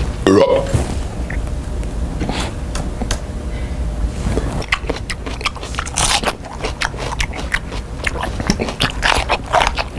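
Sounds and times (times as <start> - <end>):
person chewing loudly: 4.4 - 9.9
mouth smacking sound: 4.5 - 9.9.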